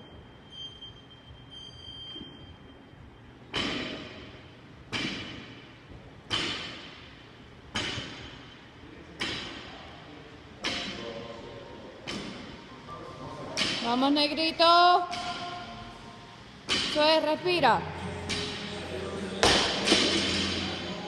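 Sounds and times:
barbell thudding on rubber floor: 0:06.3 - 0:07.1, 0:07.7 - 0:08.4, 0:19.4 - 0:20.6.

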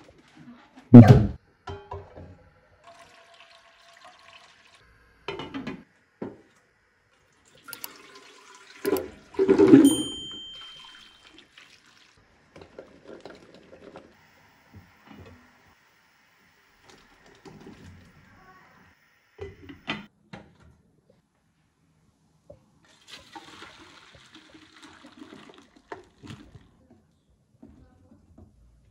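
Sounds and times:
running water: 0:02.8 - 0:04.9, 0:07.3 - 0:20.1
glass lid clinking on colander: 0:09.7 - 0:11.2.

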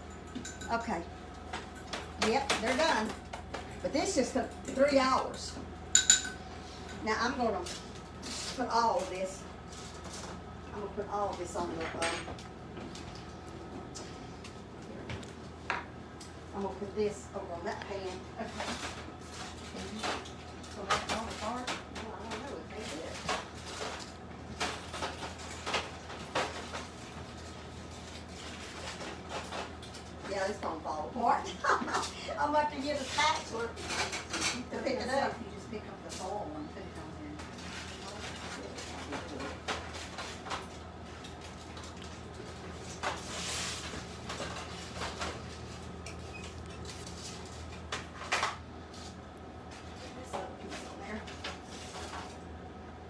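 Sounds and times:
cookware clattering: 0:05.9 - 0:06.4.

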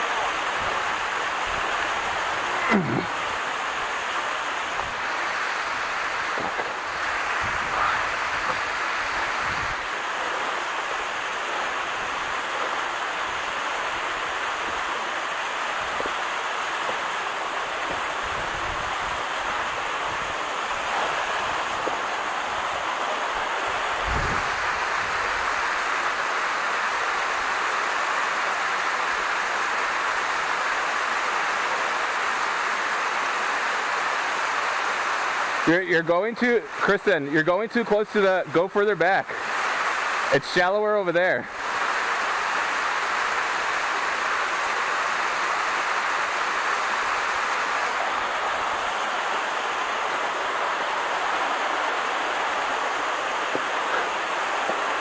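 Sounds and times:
waterfall rushing: 0:00.0 - 0:55.0
wind rumble on microphone: 0:06.3 - 0:09.9, 0:23.9 - 0:25.5.

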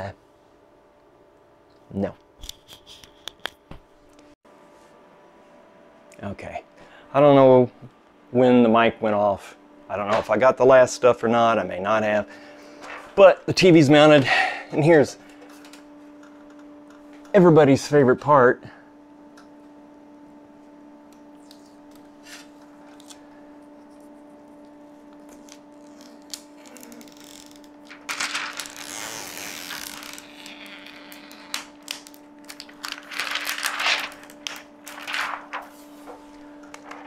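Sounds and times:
steady low hum: 0:00.0 - 0:37.0
plastic film being peeled off: 0:25.2 - 0:36.0.

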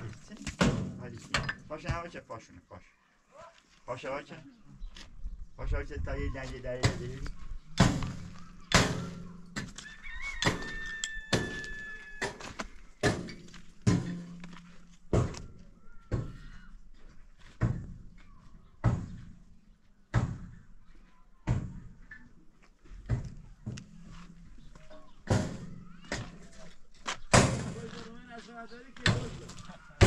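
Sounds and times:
tool striking wood: 0:07.8 - 0:09.8, 0:10.4 - 0:15.5.

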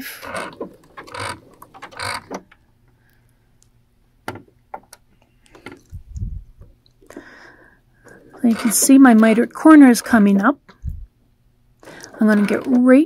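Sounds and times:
sewing machine stitching: 0:00.0 - 0:02.5, 0:08.0 - 0:10.4, 0:11.8 - 0:13.0.

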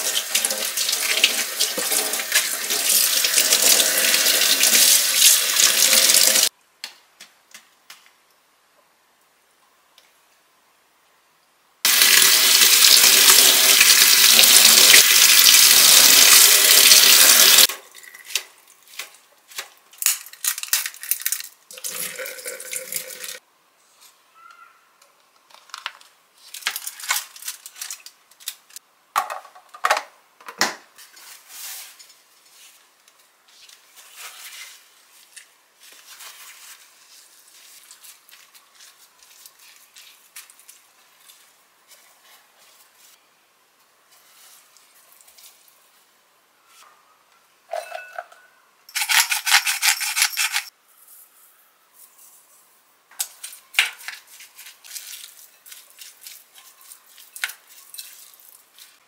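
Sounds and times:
paper towels rustling: 0:31.0 - 0:43.2.

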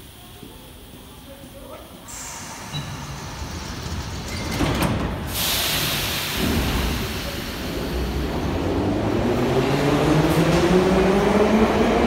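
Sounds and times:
train doors shutting: 0:02.1 - 0:12.0
compressed air hiss: 0:05.2 - 0:08.2.

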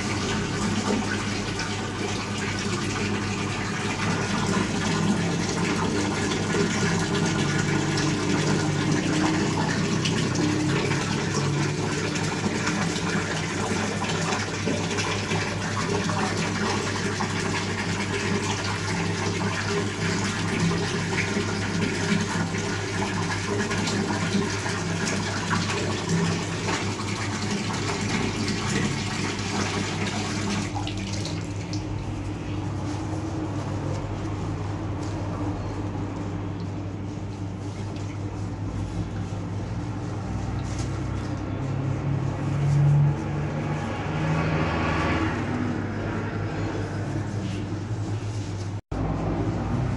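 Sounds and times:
water pouring into metal bowl: 0:00.0 - 0:32.2.

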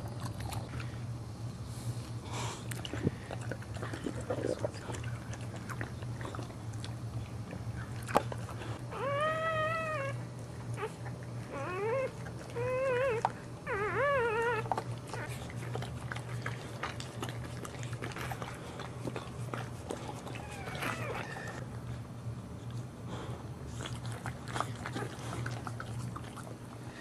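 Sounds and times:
dog licking wet clicks: 0:02.7 - 0:08.6, 0:14.5 - 0:21.6
puppy crying: 0:08.8 - 0:15.4, 0:20.2 - 0:21.6.

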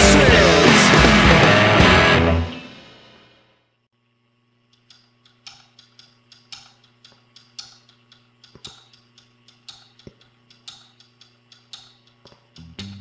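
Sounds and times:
low steady hum: 0:04.0 - 0:13.0
hi-hat tapping: 0:04.8 - 0:13.0.

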